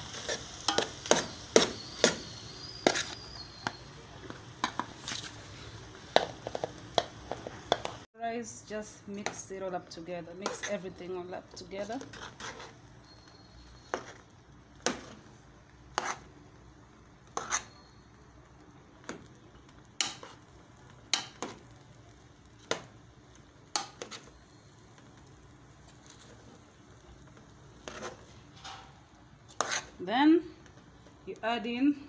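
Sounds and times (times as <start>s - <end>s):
metal spoon scraping metal pot: 0.1s - 3.8s, 10.4s - 14.3s, 15.9s - 16.3s, 17.3s - 18.1s, 27.8s - 30.0s.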